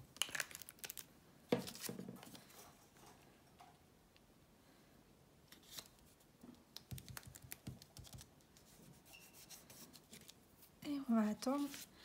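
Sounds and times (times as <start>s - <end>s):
fingers tapping on paper: 6.8s - 8.3s.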